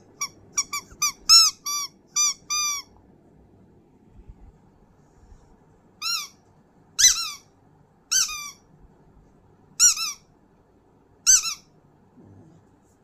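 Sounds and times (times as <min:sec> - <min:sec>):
rubber squeaky toy squeaks: 0:00.2 - 0:02.9, 0:06.0 - 0:06.4, 0:07.0 - 0:07.4, 0:08.1 - 0:08.6, 0:09.8 - 0:10.2, 0:11.3 - 0:11.6.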